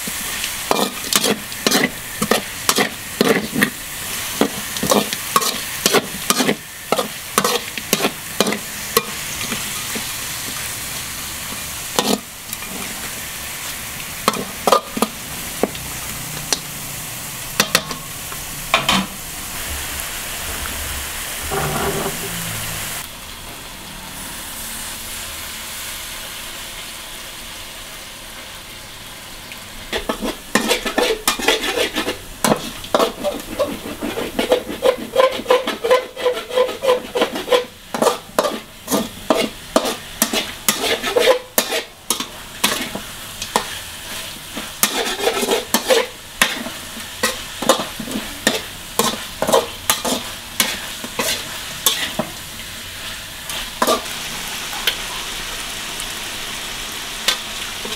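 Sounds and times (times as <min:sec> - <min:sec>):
metal spatula scraping wok: 0:00.0 - 0:10.7, 0:11.8 - 0:16.6, 0:18.6 - 0:23.1, 0:29.9 - 0:55.0
meat sizzling in a wok: 0:00.0 - 0:57.9.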